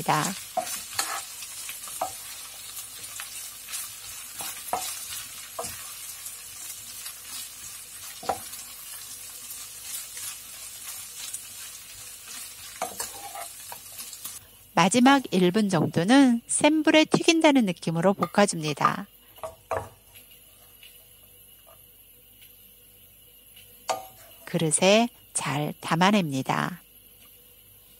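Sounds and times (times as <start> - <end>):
meat and beans sizzling in a pan: 0.0 - 27.9
spatula scraping and tapping a pan: 0.4 - 6.0, 8.1 - 8.6, 12.3 - 14.0, 18.2 - 21.0, 23.9 - 24.4.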